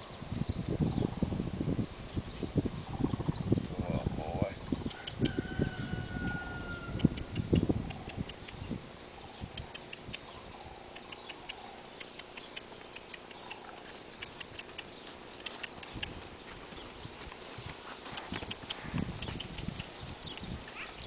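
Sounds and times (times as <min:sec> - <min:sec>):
hoofbeats on gravel: 0:12.7 - 0:20.9.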